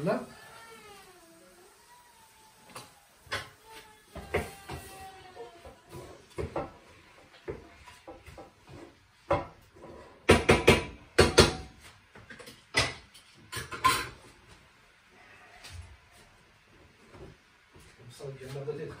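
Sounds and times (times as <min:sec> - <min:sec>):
pots and utensils clattering: 0:04.2 - 0:14.3.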